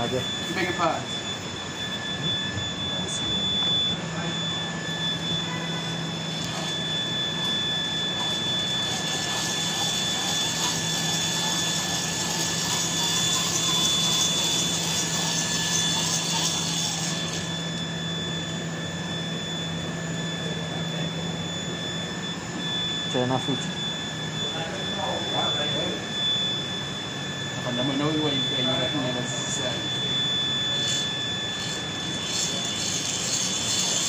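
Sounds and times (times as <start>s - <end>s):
machine humming and whining: 0.0s - 34.0s.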